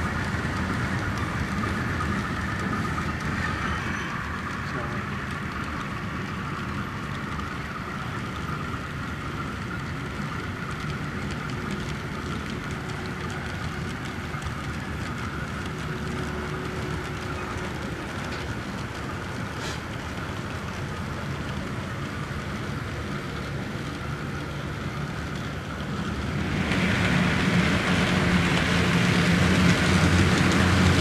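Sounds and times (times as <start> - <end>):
model train running: 0.0 - 31.0
hiss: 19.5 - 20.0.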